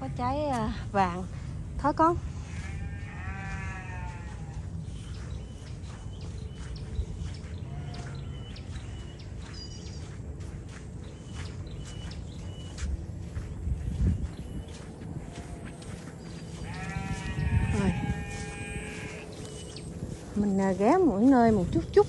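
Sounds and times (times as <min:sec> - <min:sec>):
low background hum: 0:00.0 - 0:22.0
farm animal bleating: 0:02.0 - 0:05.0, 0:07.6 - 0:08.9, 0:15.1 - 0:21.8.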